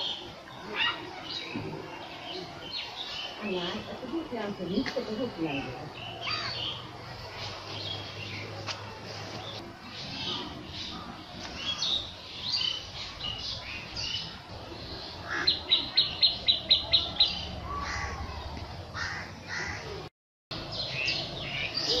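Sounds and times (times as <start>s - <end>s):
birds chirping and calling: 0.0s - 22.0s.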